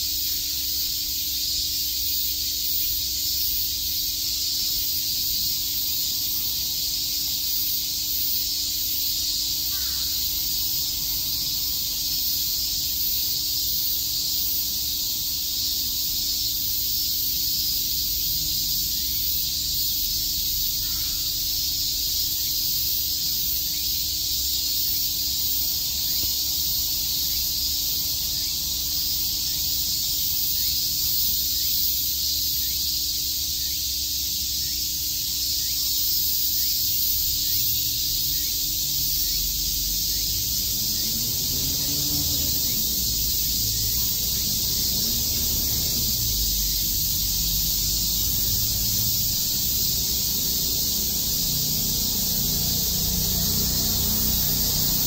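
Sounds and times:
cicadas calling: 0:00.0 - 0:55.0.

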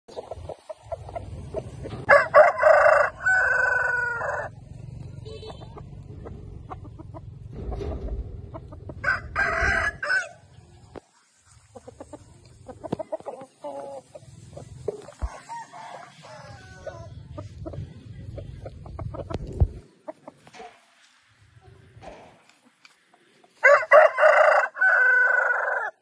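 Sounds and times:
soft clucking calls: 0:00.1 - 0:03.0, 0:03.8 - 0:21.0
rooster crowing: 0:02.1 - 0:04.6, 0:09.0 - 0:10.4, 0:15.2 - 0:17.1, 0:23.6 - 0:26.0.

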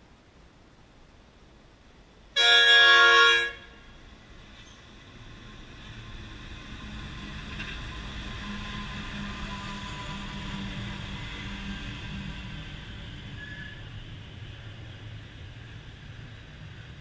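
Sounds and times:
locomotive horn blast: 0:02.4 - 0:03.9
locomotive engine and wheels passing: 0:02.6 - 0:17.0.

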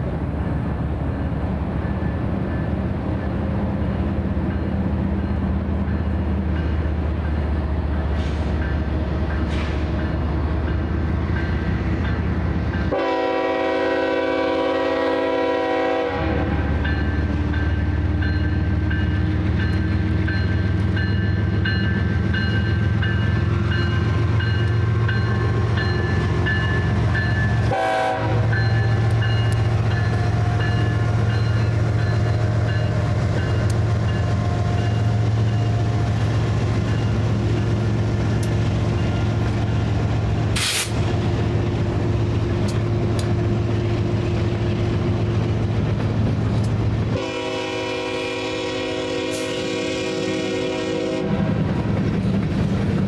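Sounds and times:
diesel locomotive engine drone: 0:00.0 - 0:53.0
train air horn blasts: 0:12.9 - 0:16.8, 0:27.6 - 0:28.8, 0:40.6 - 0:41.0, 0:47.1 - 0:51.6.

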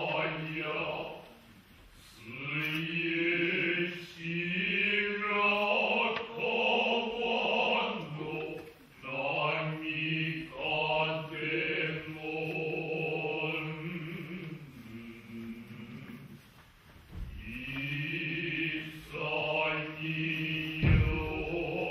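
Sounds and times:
men chanting in held notes: 0:17.4 - 0:21.9.

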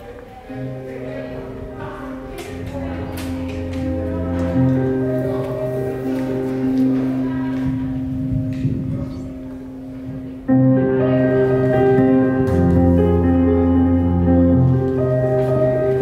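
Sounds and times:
instrumental music with held tones: 0:00.4 - 0:16.0.

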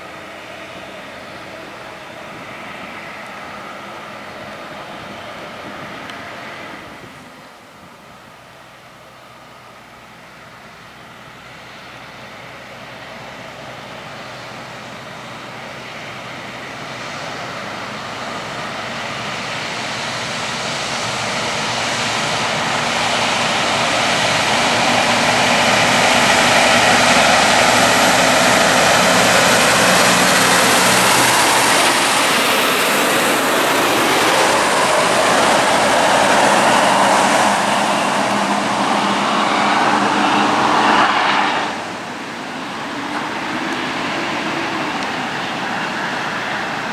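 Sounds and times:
truck diesel engine under load: 0:00.0 - 0:46.9
trailer tyres rolling: 0:10.1 - 0:46.9.

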